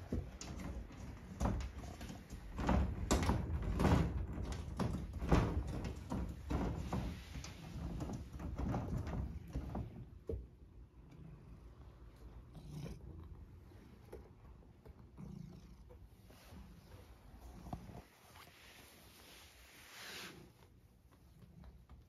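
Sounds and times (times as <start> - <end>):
window sash rattling: 0.3 - 10.0.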